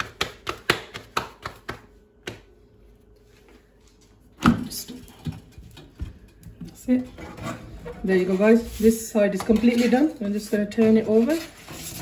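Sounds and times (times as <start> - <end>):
hands slapping dough: 0.0 - 2.6.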